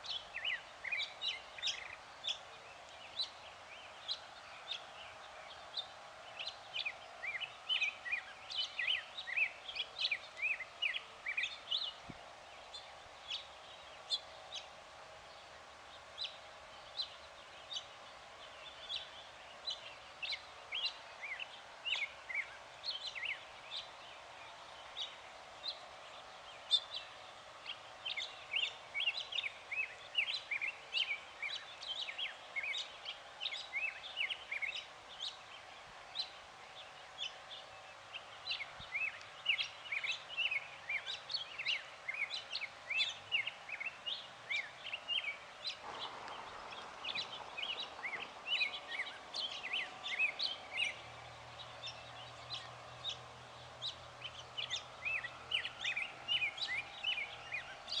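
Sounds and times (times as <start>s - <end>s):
birds chirping: 0.0s - 58.0s
soft rushing noise: 45.6s - 51.9s.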